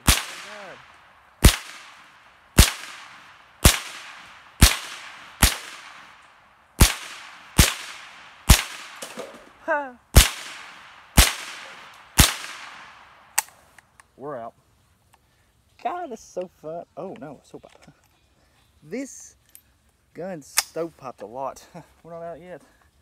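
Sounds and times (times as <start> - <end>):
rifle shots cracking: 0.0 - 13.6.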